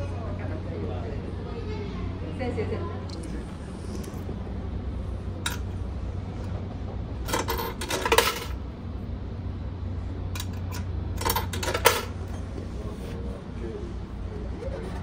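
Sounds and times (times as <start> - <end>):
coins clinking in box: 7.3 - 8.6.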